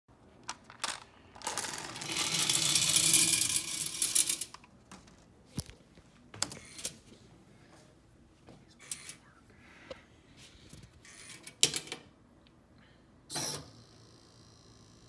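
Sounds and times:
marbles rattling: 0:00.6 - 0:04.5.

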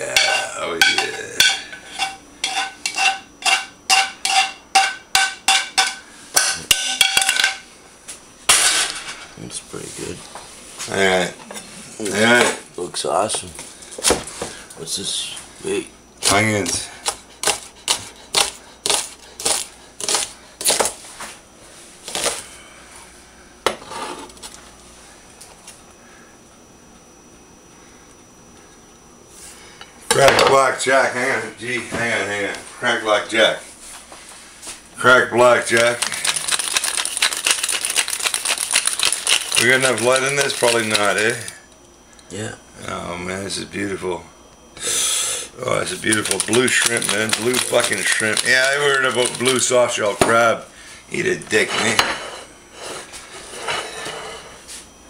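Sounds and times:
metal utensil striking frying pan: 0:00.2 - 0:07.6
knife chopping on cutting board: 0:17.1 - 0:21.0.

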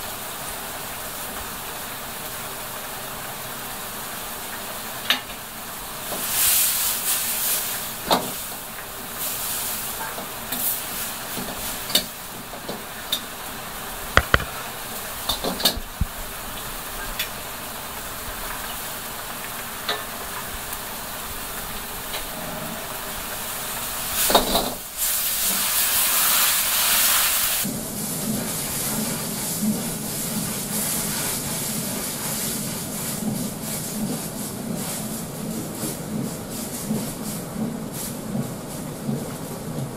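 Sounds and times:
gas burner low rumble: 0:00.0 - 0:39.9
sauce bubbling and sizzling in a wok: 0:00.0 - 0:39.9
loud burst of hissing: 0:23.6 - 0:27.7.

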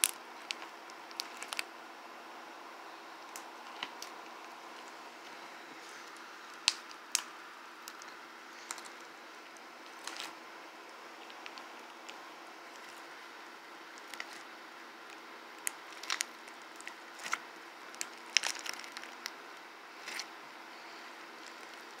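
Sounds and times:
slime crackling and popping: 0:00.0 - 0:01.7, 0:03.2 - 0:05.0, 0:06.0 - 0:20.4, 0:21.3 - 0:22.0
steady low hiss: 0:00.0 - 0:22.0.

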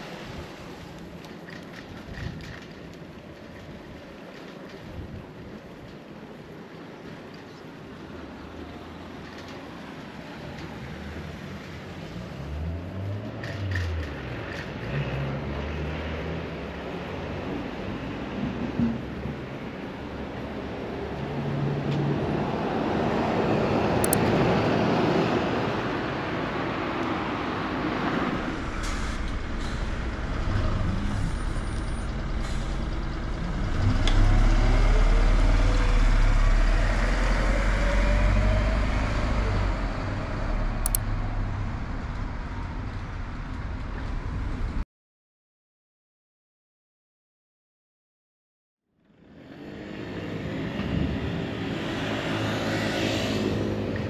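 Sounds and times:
road and wind noise: 0:00.0 - 0:44.8, 0:48.9 - 0:54.0
bus engine accelerating: 0:21.8 - 0:44.8.

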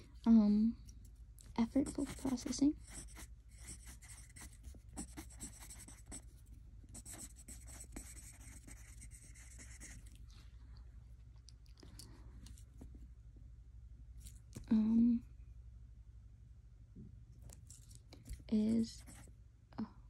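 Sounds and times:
pen scratching on paper: 0:01.6 - 0:10.1, 0:18.9 - 0:19.2.

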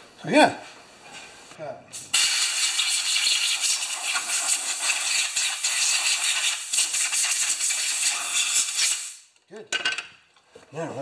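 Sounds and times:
compressed air hissing: 0:01.4 - 0:09.3.

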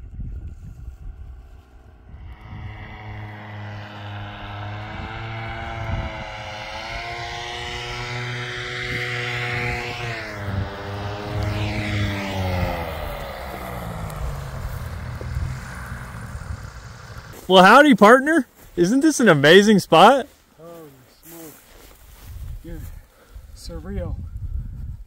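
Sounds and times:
paramotor engine and propeller: 0:00.0 - 0:17.8.

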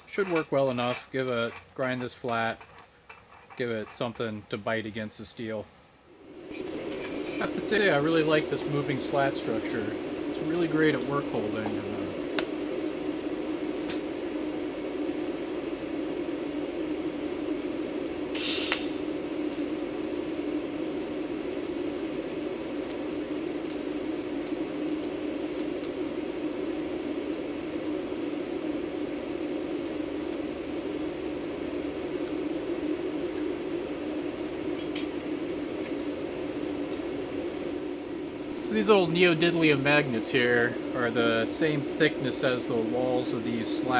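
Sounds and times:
steady low hum: 0:00.0 - 0:43.9
welding arc crackle: 0:06.5 - 0:12.6, 0:13.3 - 0:14.1, 0:18.3 - 0:37.3, 0:38.0 - 0:43.9.

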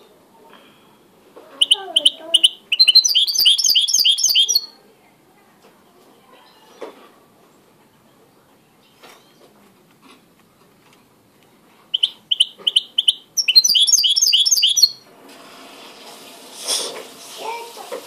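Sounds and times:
canary singing: 0:01.5 - 0:04.8, 0:11.9 - 0:15.0.

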